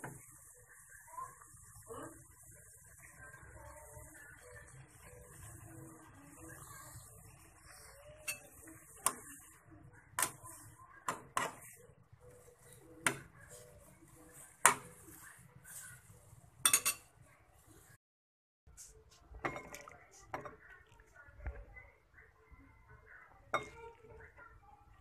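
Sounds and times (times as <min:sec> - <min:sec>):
chopsticks clinking on saucepan: 0:16.6 - 0:17.2.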